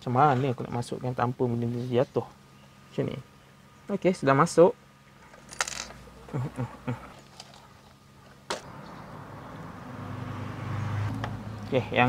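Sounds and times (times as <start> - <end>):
small parts clicking and tapping: 5.4 - 6.0.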